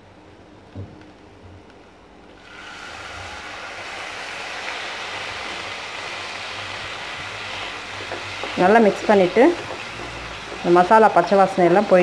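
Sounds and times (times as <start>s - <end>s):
water sizzling in hot pan: 2.4s - 12.0s.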